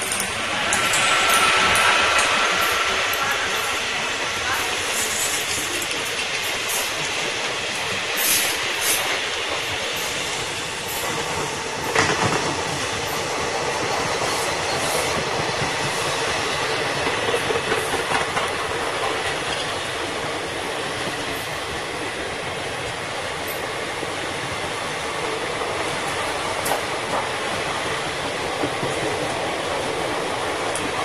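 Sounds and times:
train wheels rumbling on rails: 0.0 - 31.0.

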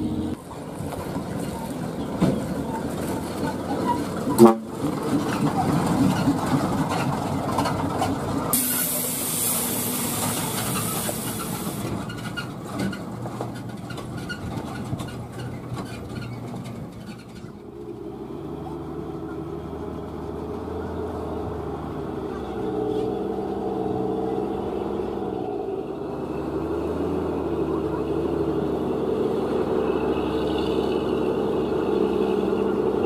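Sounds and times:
truck engines running: 0.0 - 33.0
high hiss: 8.6 - 11.9.

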